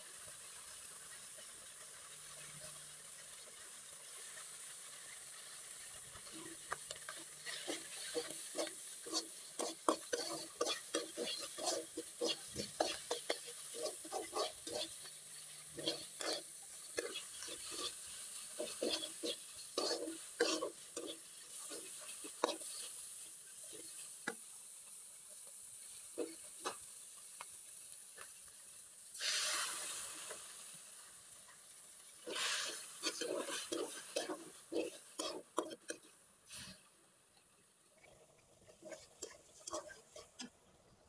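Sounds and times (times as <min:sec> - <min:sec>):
oil sizzling: 0:00.0 - 0:41.0
metal spatula scraping wok: 0:04.2 - 0:24.2, 0:32.2 - 0:36.8, 0:38.6 - 0:40.5.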